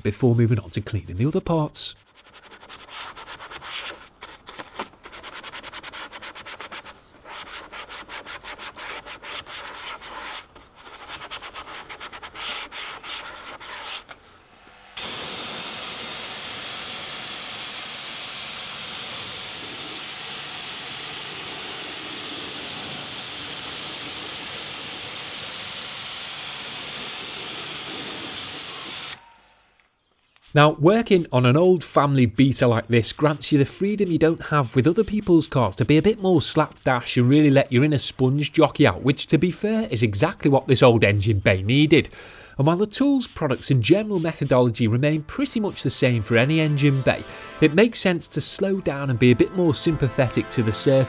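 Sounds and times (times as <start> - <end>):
brush scrubbing plastic: 2.0 - 14.2, 18.7 - 25.8, 30.4 - 36.9, 42.6 - 48.8
pressure washer spray hiss: 15.0 - 29.2.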